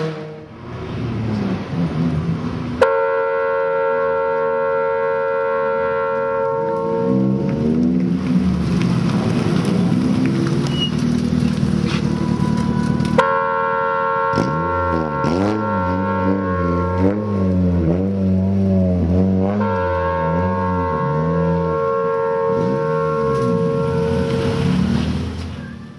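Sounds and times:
race car engine revving: 14.0s - 25.6s.

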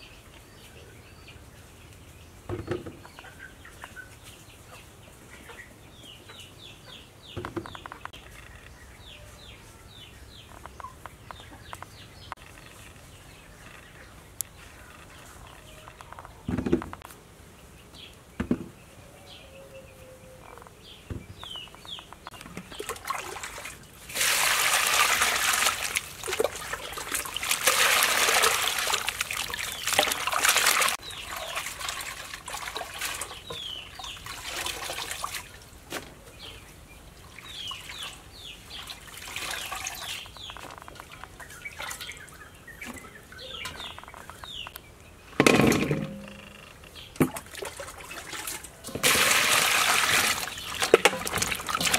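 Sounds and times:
small birds chirping: 0.0s - 23.8s, 25.7s - 45.4s, 50.3s - 51.9s
water splashing in a metal basin: 22.6s - 35.7s, 37.3s - 42.4s, 47.2s - 51.9s.

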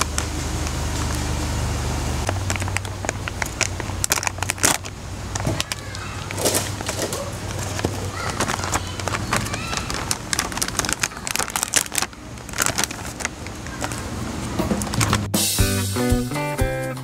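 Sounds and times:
plastic bag crinkling and ripping: 2.2s - 15.3s.

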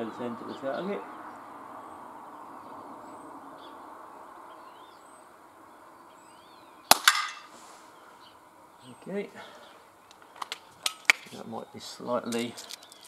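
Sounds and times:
air pistol firing crack: 6.9s - 7.5s.

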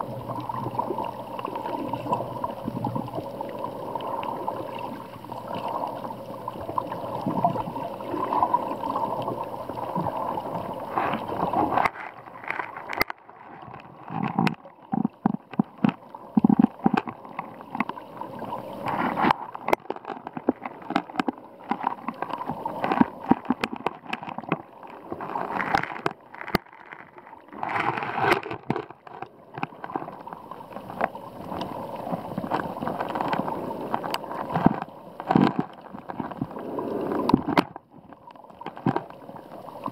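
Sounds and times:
water sloshing and gurgling: 0.0s - 39.9s
sharp clicks and knocks: 11.8s - 18.0s, 18.9s - 30.0s.

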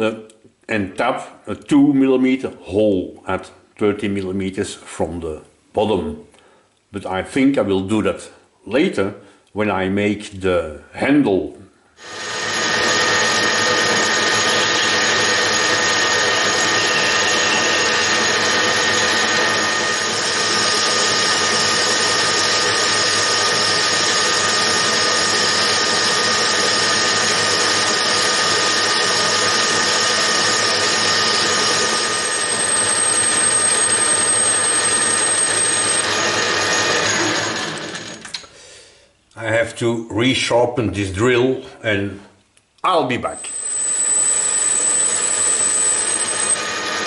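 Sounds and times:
metal lathe whining: 12.0s - 38.5s, 43.3s - 47.0s.

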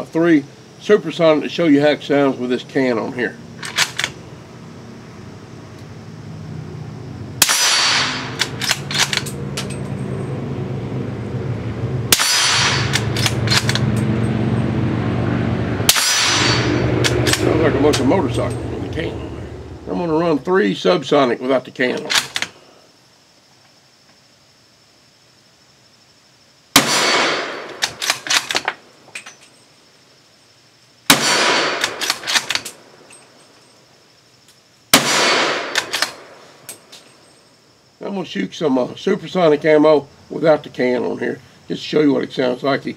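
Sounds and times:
low hum: 3.4s - 20.6s
suppressed rifle shots: 7.4s - 9.2s, 12.1s - 13.8s, 15.9s - 18.0s, 26.8s - 28.6s, 31.1s - 32.8s, 34.9s - 36.4s
rifle bolt clicking: 12.8s - 13.9s.

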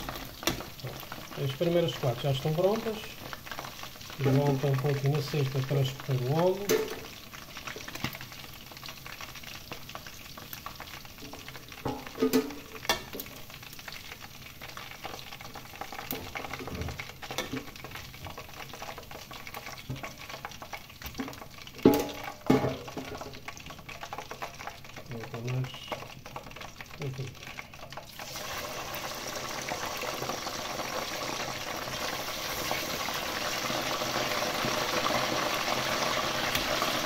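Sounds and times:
food sizzling in hot oil: 0.0s - 37.0s
metal tongs clinking on pot: 6.6s - 7.0s.

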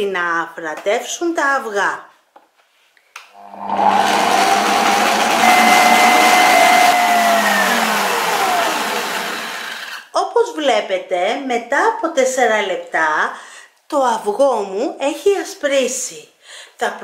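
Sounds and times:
stand mixer motor whirring: 3.4s - 10.0s.

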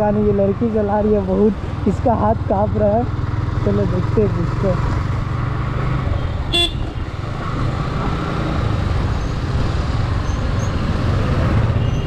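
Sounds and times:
motorcycle engine running: 0.0s - 7.9s
road and traffic noise: 0.0s - 12.0s
horn beep: 6.5s - 6.9s.

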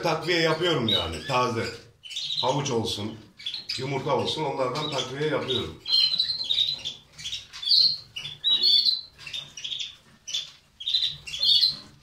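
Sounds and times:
canaries chirping and squawking: 0.0s - 12.0s.

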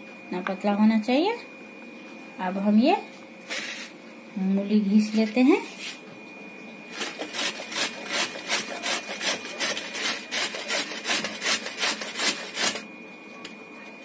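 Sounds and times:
radish grated on hand grater: 6.9s - 12.8s.

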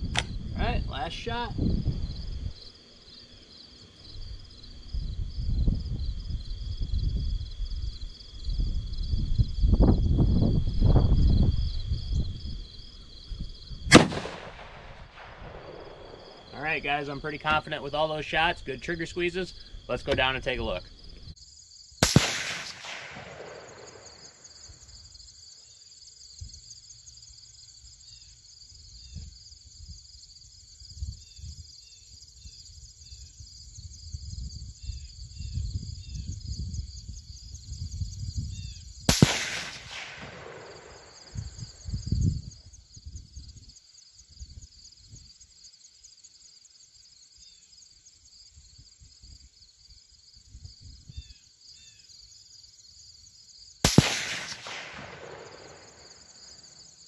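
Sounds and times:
wind rumble on microphone: 0.0s - 2.7s, 4.1s - 16.1s, 30.8s - 31.8s, 32.4s - 39.1s, 39.7s - 45.4s, 50.4s - 51.3s
insects chirping: 0.0s - 57.0s
rifle shots with echo: 13.9s - 16.4s, 22.0s - 24.4s, 39.1s - 41.5s, 53.8s - 56.3s.

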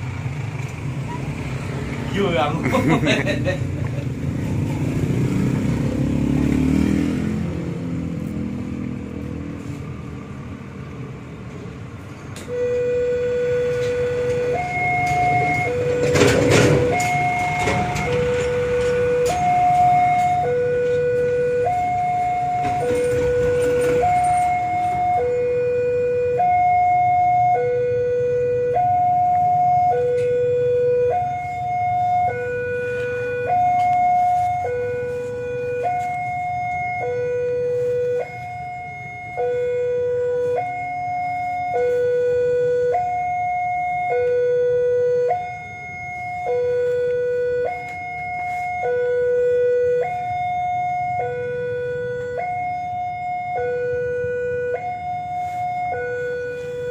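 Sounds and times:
level crossing two-tone alarm: 12.5s - 56.9s.

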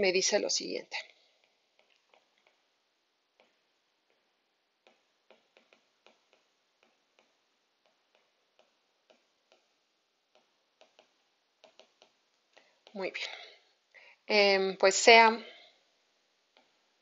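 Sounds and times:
stylus tapping on glass screen: 4.9s - 13.0s.

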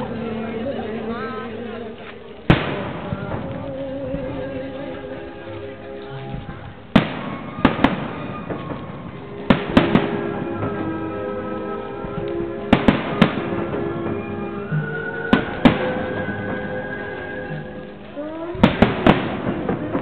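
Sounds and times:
music playing: 0.0s - 20.0s
firework shells bursting: 6.4s - 20.0s.

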